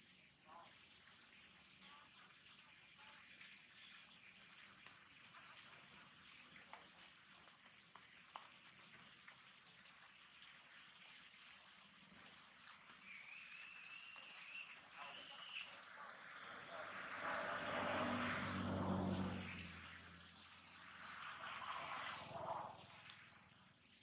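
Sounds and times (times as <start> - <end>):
faint rain hiss: 0.0 - 24.0
drip ticks: 3.0 - 11.3.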